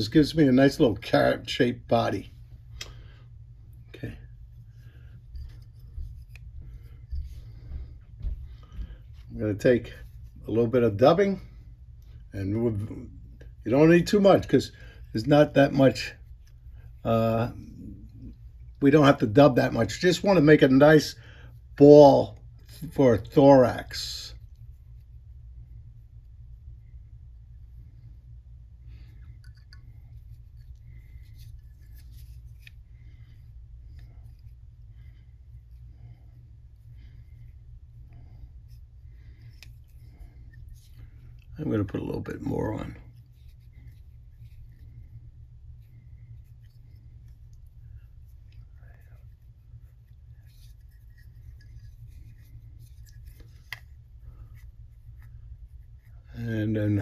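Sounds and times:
low hum: 0.0s - 57.0s
scratchy rubbing and small clicks: 28.9s - 57.0s.

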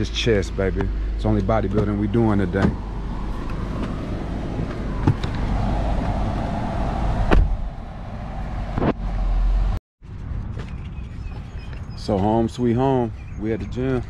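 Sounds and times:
car engine rumbling: 0.0s - 12.4s.

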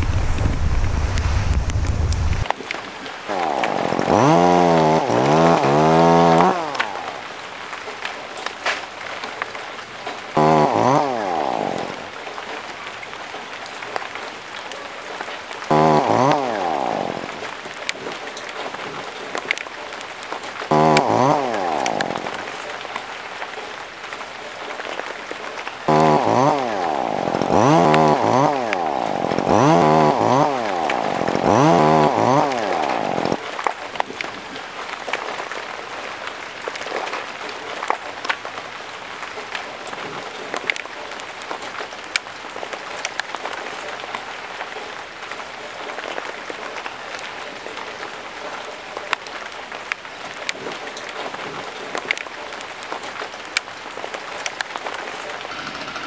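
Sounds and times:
rain hiss: 0.0s - 56.0s
chainsaw revving: 2.4s - 8.2s, 10.3s - 12.8s, 15.6s - 19.6s, 20.6s - 23.0s, 25.8s - 34.1s, 54.5s - 56.0s.

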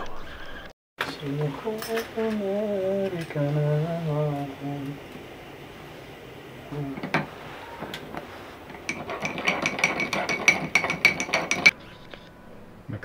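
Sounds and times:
metal spoon clinking in coffee pot: 1.8s - 2.4s, 8.7s - 11.8s.

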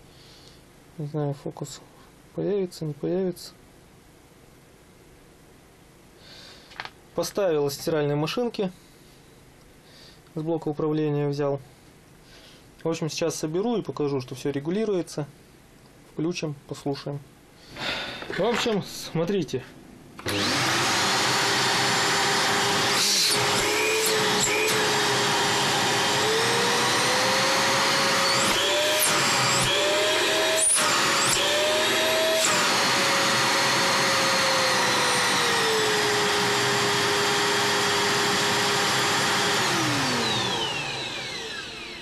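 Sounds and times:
vacuum cleaner motor whine: 20.2s - 42.0s.

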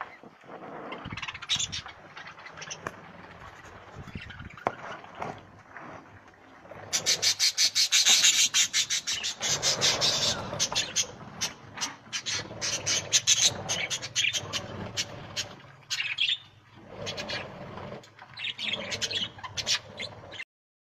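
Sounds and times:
budgerigars chirping and chattering: 1.0s - 2.8s, 6.9s - 17.5s, 18.4s - 20.4s.

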